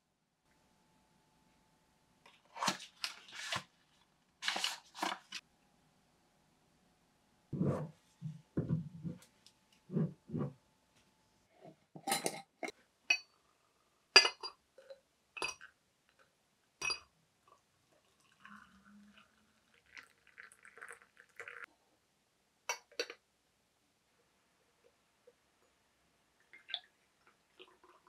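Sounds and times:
kitchenware clinking and knocking: 0:08.6 - 0:09.2
water pouring into teapot: 0:17.4 - 0:21.7.

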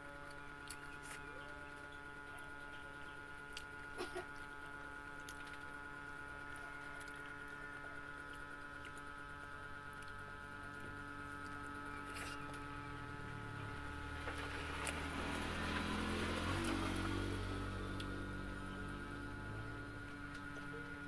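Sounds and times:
steady hum: 0:00.0 - 0:21.0
soft ticks and squishes: 0:00.2 - 0:12.7
person chewing: 0:11.4 - 0:12.6.

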